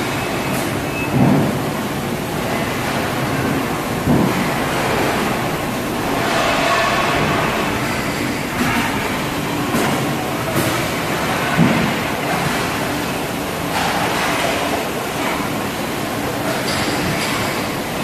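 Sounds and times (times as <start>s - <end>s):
machine rumble: 1.2s - 12.1s.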